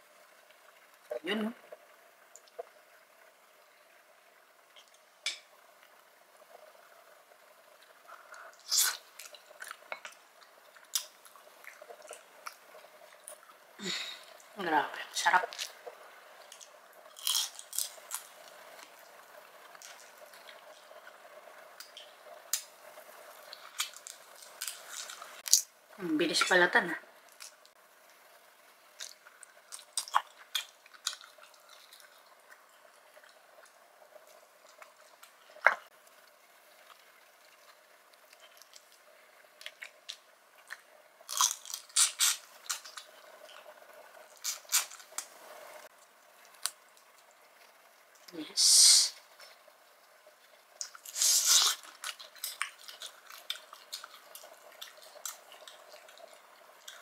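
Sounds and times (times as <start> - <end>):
crunchy bites and chewing: 16.5 - 18.9, 40.6 - 43.1.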